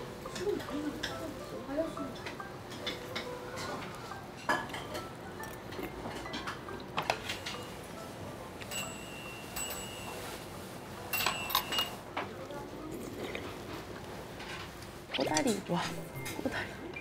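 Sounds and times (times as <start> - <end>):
high ringing chime: 8.7 - 10.4.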